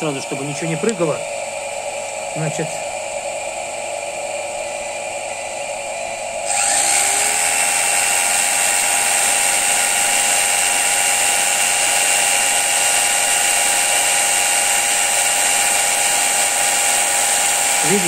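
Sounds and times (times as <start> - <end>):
motor and generator humming: 0.0 - 18.0
electric jigsaw whirring: 6.4 - 18.0.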